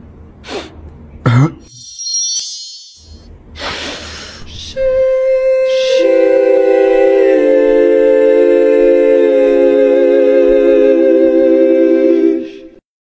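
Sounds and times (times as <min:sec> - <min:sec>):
a cappella voices in harmony: 0:04.4 - 0:12.8.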